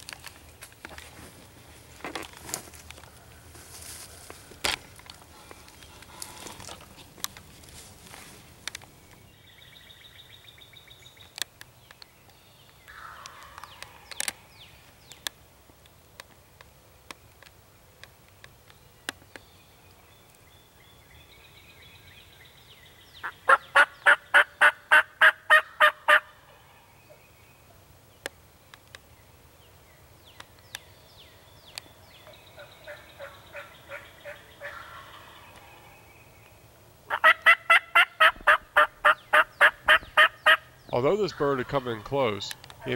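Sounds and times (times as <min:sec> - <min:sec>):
soft turkey calls: 0:12.9 - 0:14.5, 0:32.3 - 0:36.1, 0:37.1 - 0:42.9
wild turkey yelps: 0:23.2 - 0:27.2, 0:32.5 - 0:35.9, 0:37.1 - 0:40.7.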